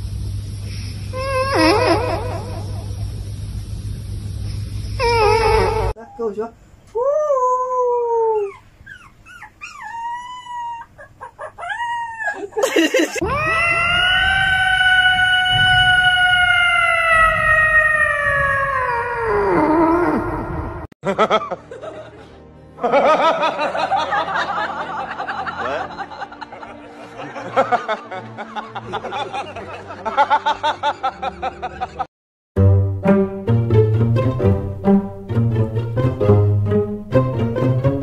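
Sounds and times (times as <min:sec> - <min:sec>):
cat yowling: 0:05.0 - 0:06.0, 0:13.2 - 0:20.5
puppy whining howls: 0:07.0 - 0:12.6, 0:13.2 - 0:20.7.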